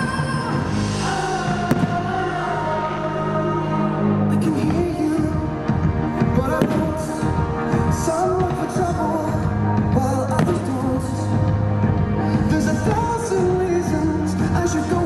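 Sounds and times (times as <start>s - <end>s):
song over stadium sound system: 0.0s - 15.0s
firework bangs: 1.6s - 2.4s, 6.4s - 9.0s, 10.3s - 11.0s.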